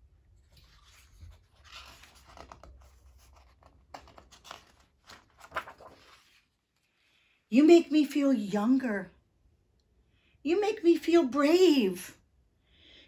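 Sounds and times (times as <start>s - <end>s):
paper rustling and sliding: 0.3s - 6.9s.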